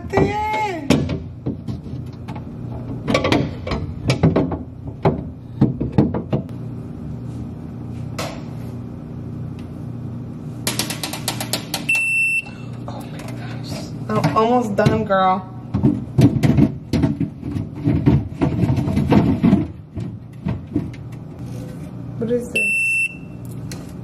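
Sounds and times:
plastic bins knocking and clattering: 0:00.0 - 0:06.5, 0:14.1 - 0:21.1
refrigerator humming: 0:00.0 - 0:24.0
refrigerator alarm beep: 0:11.9 - 0:12.7, 0:22.5 - 0:23.5.

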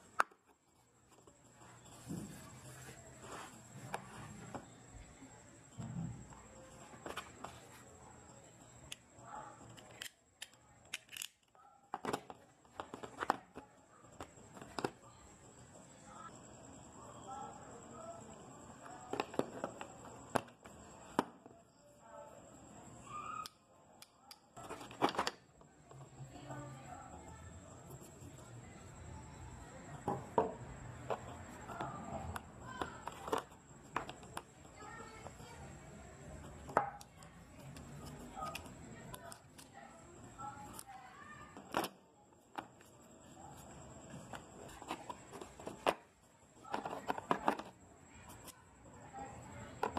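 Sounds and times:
utility knife clicks and plastic snaps: 0:09.7 - 0:11.5.

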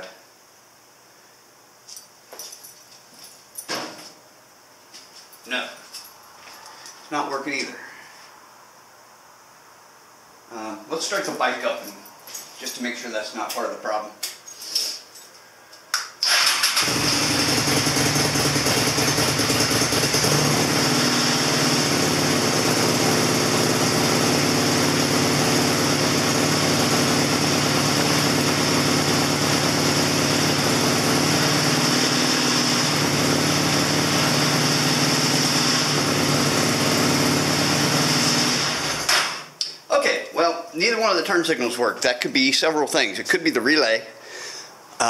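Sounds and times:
motorcycle engine starting and idling: 0:16.2 - 0:39.5.

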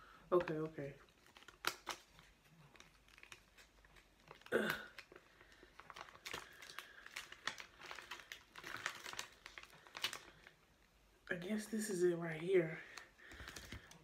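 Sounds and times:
crinkling of face-mask pouch: 0:00.3 - 0:10.9, 0:12.2 - 0:14.0.

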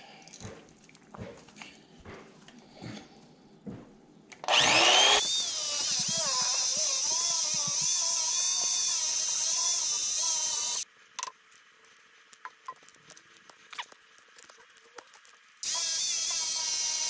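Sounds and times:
small electric motor whining: 0:04.4 - 0:10.8, 0:15.6 - 0:17.0.

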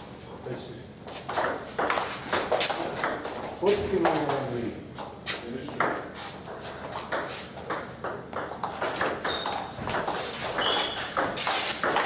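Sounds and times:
ping pong ball hits: 0:01.3 - 0:03.3, 0:05.8 - 0:12.0.

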